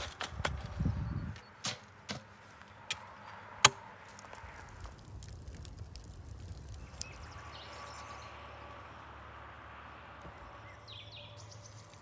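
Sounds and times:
wood embers crackling: 2.4 - 12.0
bird chirps: 6.8 - 9.0, 10.4 - 12.0.

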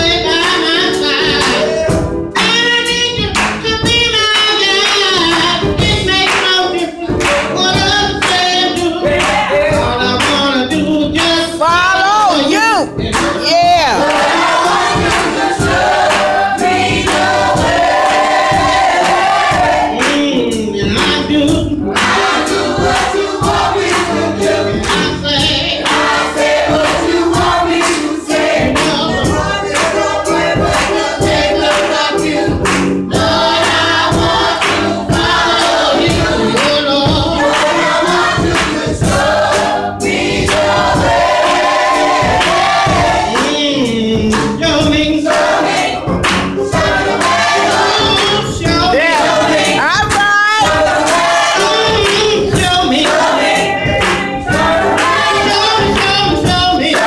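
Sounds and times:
gospel choir singing: 0.0 - 57.0
live instruments with steady beat: 0.0 - 57.0.

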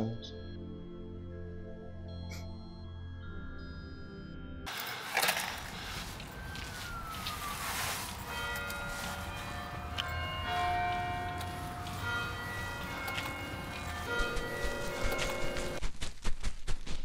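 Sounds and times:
high tones shifting pitch: 4.7 - 15.8.

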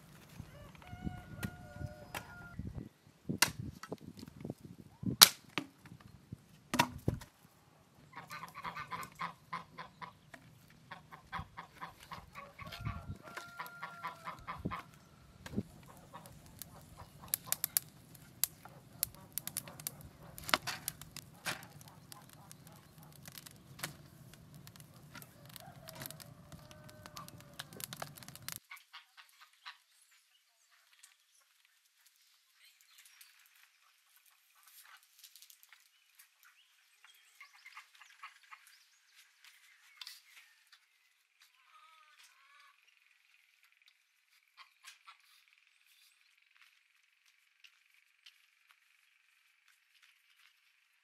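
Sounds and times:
goose honking: 8.1 - 10.2
loud cracks: 15.4 - 28.6
sharp clicks and snaps: 15.4 - 28.6.

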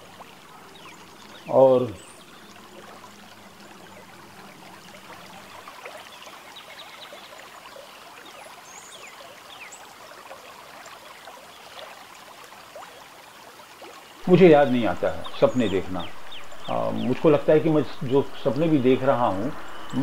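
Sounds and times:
crackling hiss: 14.2 - 20.0
low hum: 14.3 - 20.0.

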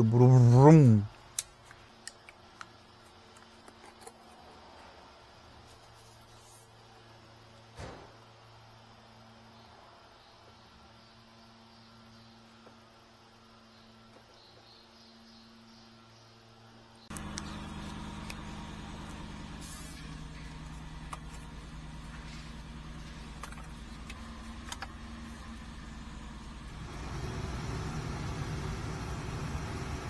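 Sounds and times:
car engine idling: 17.1 - 30.0.

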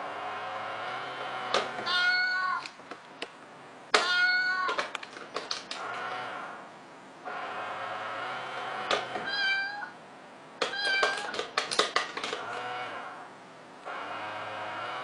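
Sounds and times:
toy cat meowing: 1.8 - 2.7, 4.0 - 4.9, 9.2 - 10.0, 10.6 - 11.5.

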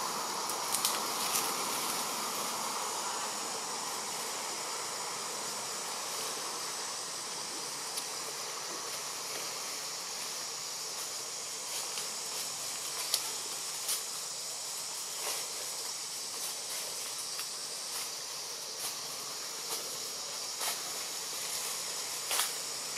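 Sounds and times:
high-pitched insect drone: 0.0 - 22.9
faint sharp clicks: 0.5 - 1.4.

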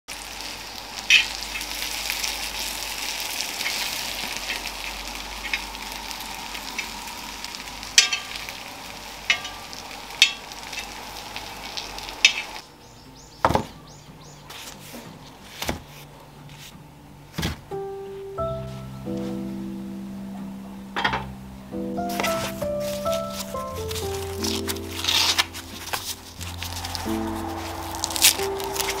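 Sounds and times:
corn sizzling in oil: 0.1 - 12.6, 22.1 - 29.0
metal tongs clicking on pan: 9.3 - 11.0.

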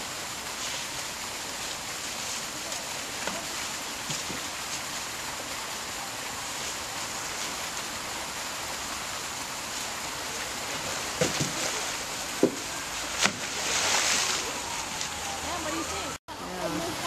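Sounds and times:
steady rushing hiss: 0.0 - 17.0
branch knocking on concrete floor: 12.4 - 12.6.

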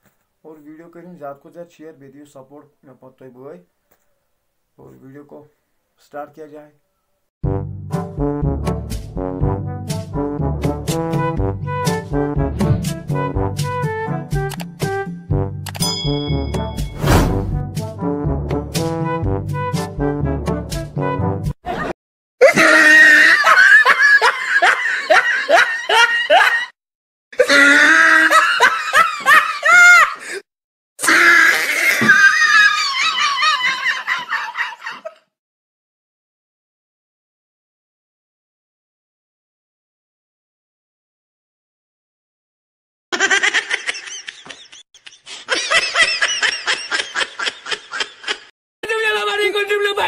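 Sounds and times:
person laughing: 21.7 - 26.7, 27.4 - 30.4, 32.0 - 35.2, 43.1 - 48.5
person giggling: 33.1 - 35.2, 43.1 - 48.5.

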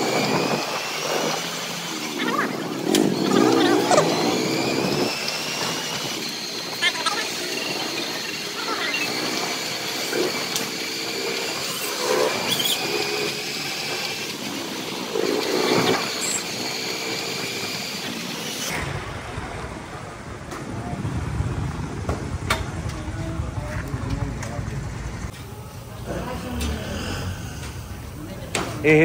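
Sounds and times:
traffic: 14.1 - 29.0
background voices: 22.7 - 29.0.

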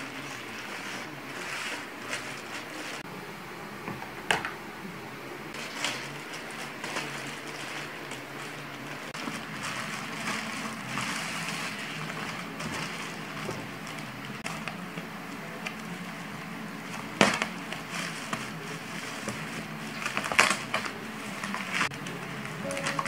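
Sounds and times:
bubble wrap rustling: 0.0 - 3.0, 5.5 - 23.0
plastic mailer crinkling: 5.6 - 14.9, 16.9 - 23.0
scissors cutting plastic: 19.2 - 23.0.

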